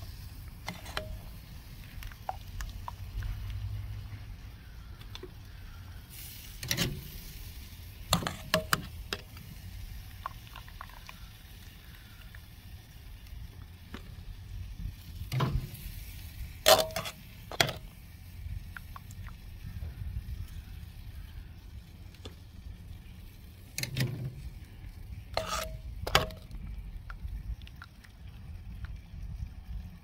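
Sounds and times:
metal tongs clinking on steel pot: 16.7 - 17.8, 25.3 - 26.5.

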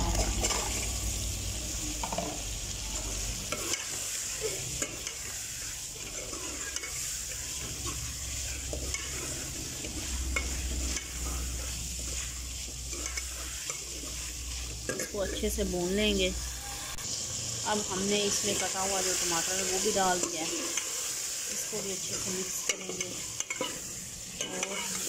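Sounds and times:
meat sizzling in a pot: 0.0 - 25.0
metal spoon scraping a pot: 2.9 - 15.6, 20.2 - 25.0.

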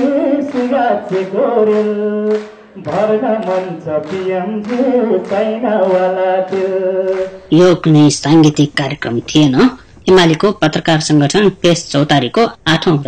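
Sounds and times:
man singing unaccompanied: 0.0 - 7.9.

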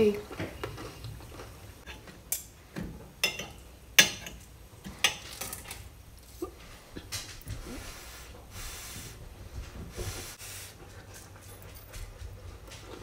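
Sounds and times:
cutlery clinking on a plate: 3.2 - 5.7.

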